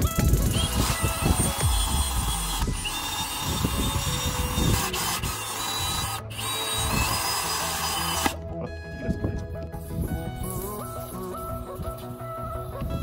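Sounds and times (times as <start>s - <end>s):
cordless drill grinding into steel: 0.0s - 8.4s.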